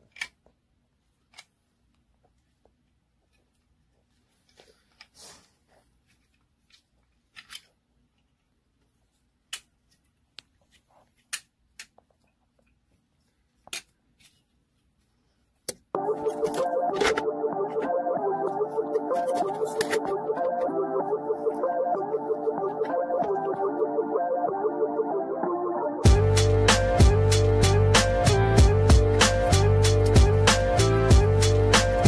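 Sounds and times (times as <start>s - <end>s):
faint clicks of parts handled: 6.0s - 17.2s
loud background music: 16.0s - 32.0s.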